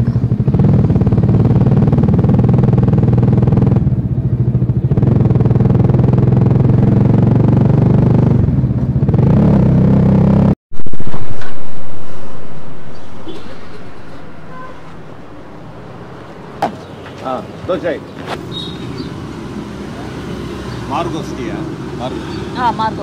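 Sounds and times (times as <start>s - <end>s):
motorcycle engine running: 0.0s - 10.6s
road noise: 0.0s - 23.0s.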